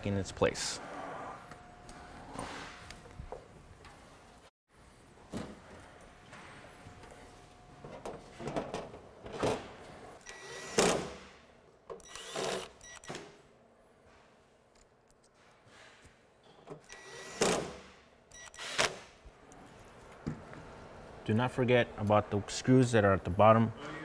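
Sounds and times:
cordless drill whirring: 12.0s - 13.0s, 16.9s - 17.6s.

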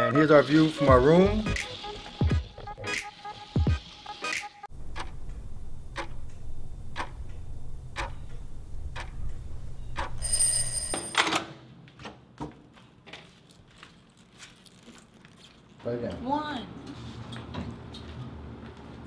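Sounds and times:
low hum: 4.7s - 10.6s
clock ticking: 4.9s - 8.3s, 8.9s - 9.4s
alarm ringing: 10.2s - 11.2s.

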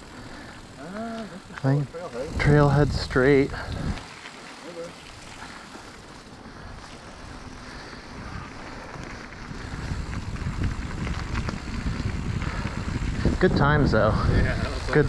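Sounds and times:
bike tyres rumbling on gravel: 0.0s - 15.0s
wind buffeting microphone: 1.5s - 4.2s, 6.5s - 15.0s.

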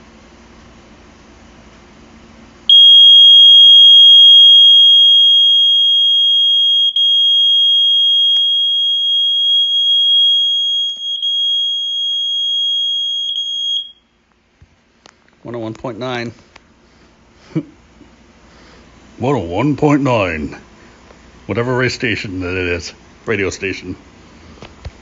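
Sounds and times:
smoke alarm high-pitched tone: 2.7s - 14.2s.

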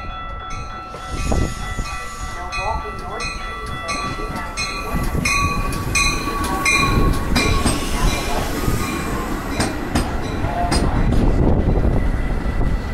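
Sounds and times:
train wheels rumbling on rail: 0.0s - 12.9s
wheels clacking over rail joints: 2.9s - 11.6s.

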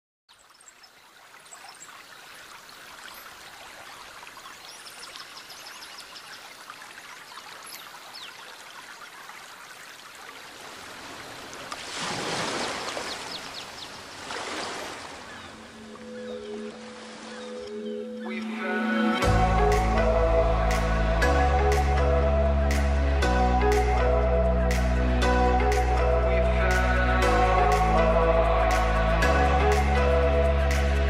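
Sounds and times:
running water rushing: 0.3s - 24.0s
music tones: 15.5s - 31.0s.

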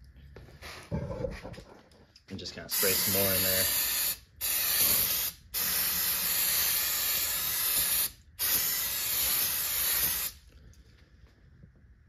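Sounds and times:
aerosol can spraying: 2.8s - 10.4s.

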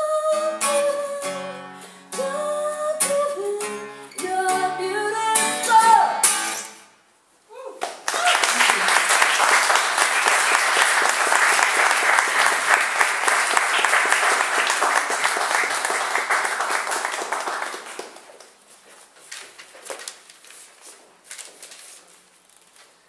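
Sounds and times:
audience applauding: 7.8s - 18.6s.

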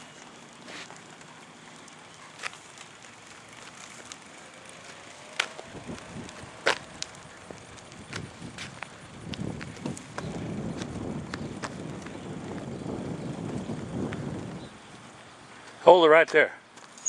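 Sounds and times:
wheels hissing on pavement: 0.0s - 17.0s.

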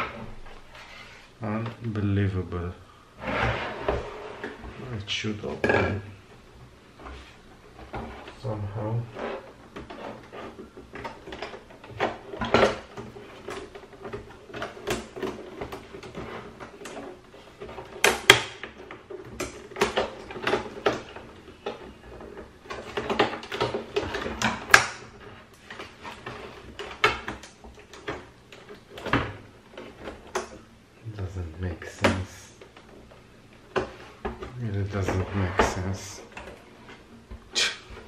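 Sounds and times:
plastic creaking and clicking: 7.0s - 38.0s
sharp plastic cracks: 11.0s - 30.7s.

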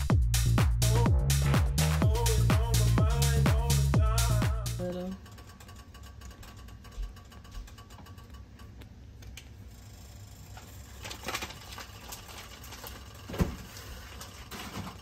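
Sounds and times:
low hum: 0.0s - 8.3s.

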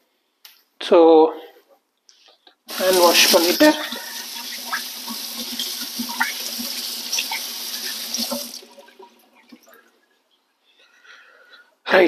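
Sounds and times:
tap water running: 2.7s - 9.9s
hands washing under water: 2.7s - 10.0s.

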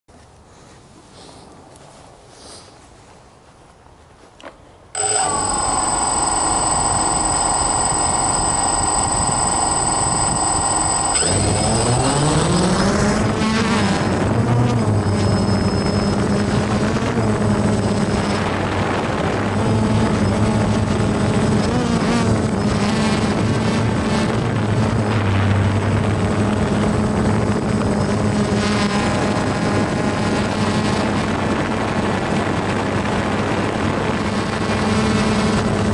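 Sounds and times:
drone motors whining: 5.0s - 31.3s.

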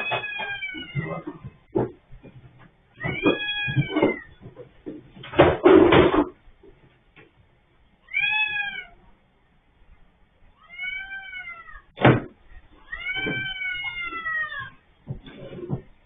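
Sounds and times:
cat meowing: 0.0s - 1.2s, 2.9s - 4.4s, 8.0s - 9.0s, 10.5s - 11.9s, 12.8s - 14.8s.

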